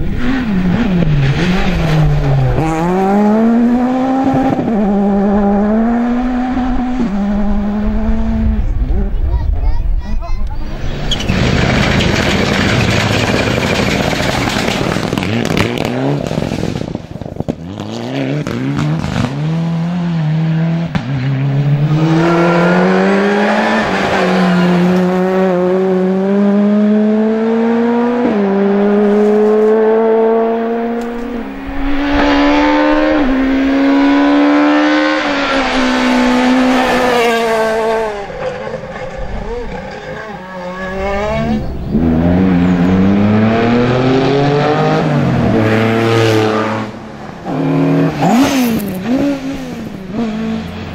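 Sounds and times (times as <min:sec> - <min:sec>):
rally car engine revving hard: 0:00.0 - 0:09.1, 0:10.8 - 0:50.9
tyres sliding on gravel: 0:10.8 - 0:15.8.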